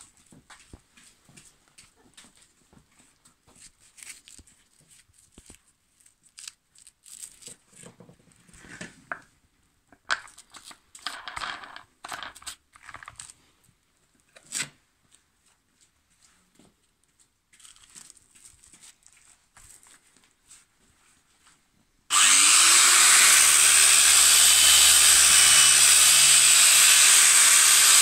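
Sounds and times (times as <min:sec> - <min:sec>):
handling rustling and scraping: 0:00.0 - 0:21.8.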